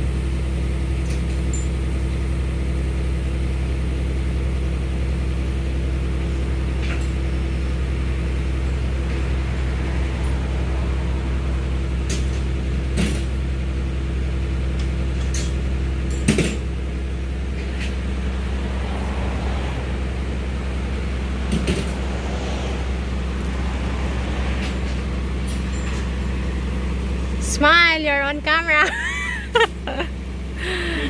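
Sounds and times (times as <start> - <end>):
tractor engine idling: 0.0 - 31.0.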